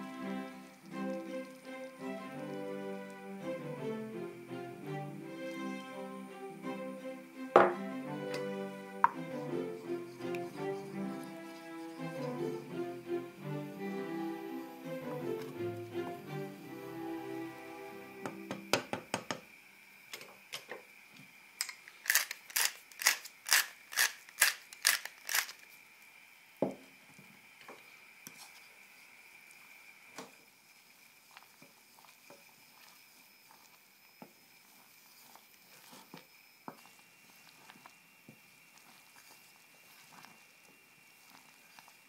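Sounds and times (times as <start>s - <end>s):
spatula scraping a saucepan: 9.2s - 12.6s, 34.6s - 36.2s.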